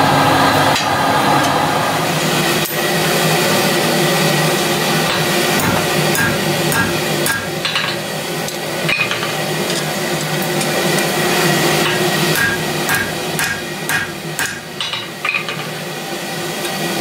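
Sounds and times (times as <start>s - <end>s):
steady hum: 0.0s - 17.0s
hammer striking steel on anvil: 5.0s - 8.1s, 8.9s - 9.9s, 11.8s - 15.8s.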